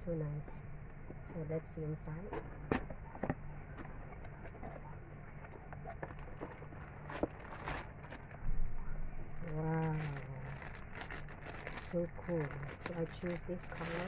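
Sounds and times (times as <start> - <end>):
plastic bag rustle: 5.4 - 8.4, 9.4 - 14.0.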